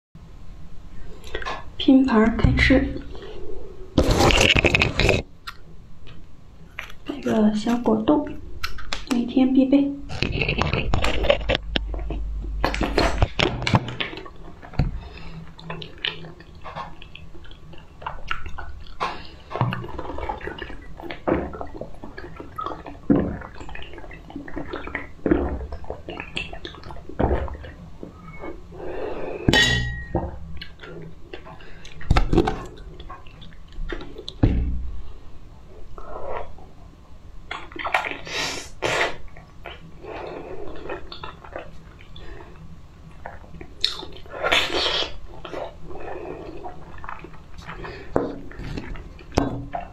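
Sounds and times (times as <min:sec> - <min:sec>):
wet mouth smacks and slurps: 0:08.6 - 0:09.1, 0:43.2 - 0:45.8
glass clink: 0:29.5 - 0:30.2.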